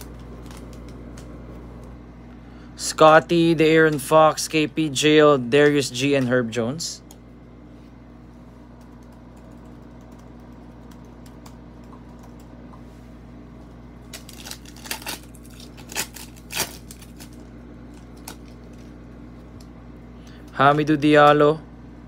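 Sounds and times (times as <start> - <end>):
cards rustling: 0.0 - 1.9, 14.1 - 19.0
foil wrapper tearing and crinkling: 14.1 - 18.9.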